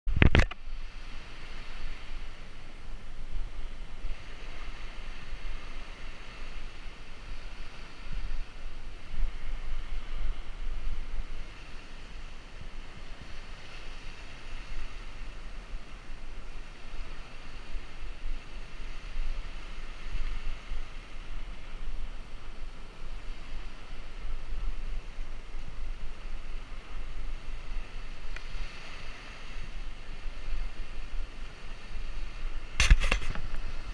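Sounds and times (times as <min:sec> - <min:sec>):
even hiss: 0:00.1 - 0:33.9
wind buffeting microphone: 0:00.1 - 0:33.9.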